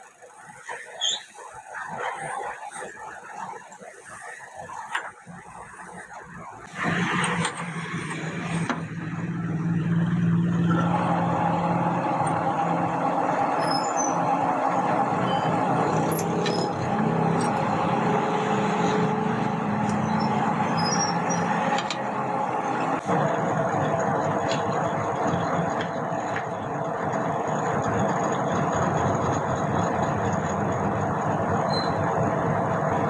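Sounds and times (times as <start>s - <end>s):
metal lathe motor hum: 7.2s - 30.9s.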